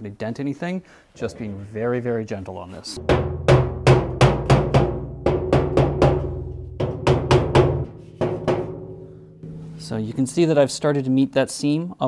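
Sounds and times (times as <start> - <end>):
mallet tapping steel drum lid: 3.0 - 9.9.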